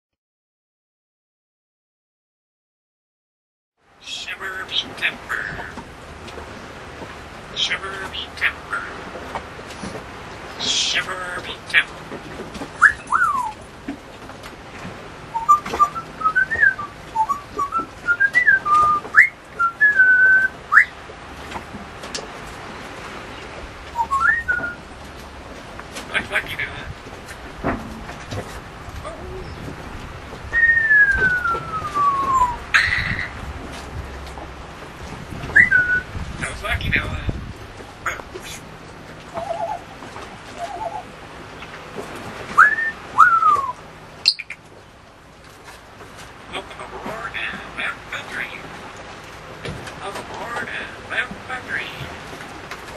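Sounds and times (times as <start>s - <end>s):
parrot whistling a tune: 12.8s - 13.5s, 15.3s - 20.9s, 24.0s - 24.8s, 30.5s - 33.3s, 35.6s - 36.1s, 39.4s - 39.8s, 40.6s - 41.1s, 42.6s - 44.6s
parrot warbling chatter: 32.7s - 33.4s, 39.3s - 39.8s, 40.6s - 41.1s, 44.2s - 44.6s.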